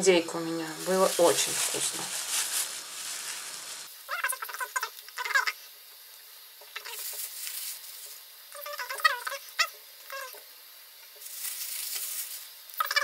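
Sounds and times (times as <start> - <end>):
plastic bag crinkling: 0.2 - 4.0, 6.8 - 8.1, 11.2 - 13.0.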